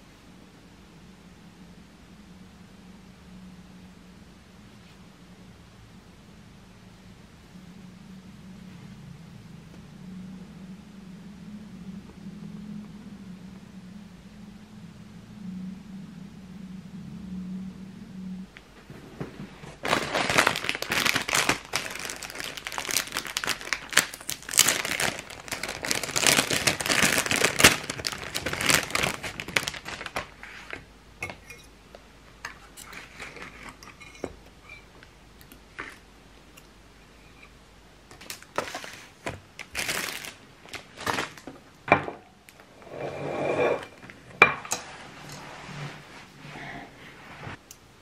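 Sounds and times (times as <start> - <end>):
packaging crinkling and rustling: 19.2 - 31.4, 38.1 - 41.7.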